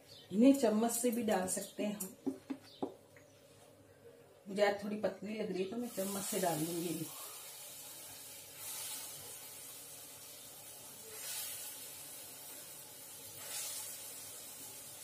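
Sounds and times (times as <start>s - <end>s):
hot oil sizzling: 5.7s - 15.0s.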